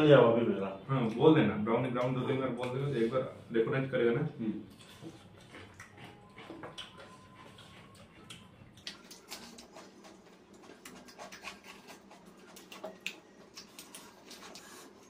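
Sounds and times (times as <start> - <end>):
chewing: 4.6 - 15.0
fingers mixing rice on plate: 4.8 - 15.0.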